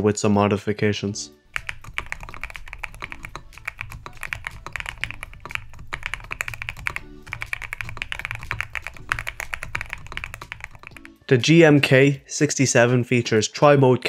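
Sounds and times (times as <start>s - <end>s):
keyboard keystroke clacks: 1.5s - 11.3s.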